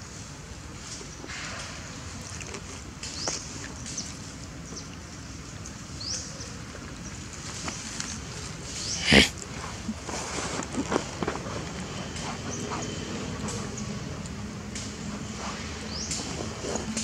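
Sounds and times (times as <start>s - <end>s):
monkey crying loudly: 9.0s - 9.3s
monkeys squeaking: 9.0s - 9.3s.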